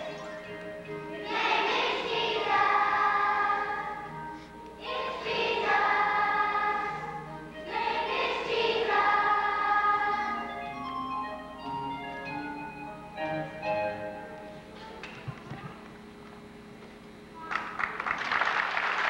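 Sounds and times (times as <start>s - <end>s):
children's choir singing: 0.0s - 10.9s
choir breaths: 4.1s - 7.2s, 9.9s - 10.6s.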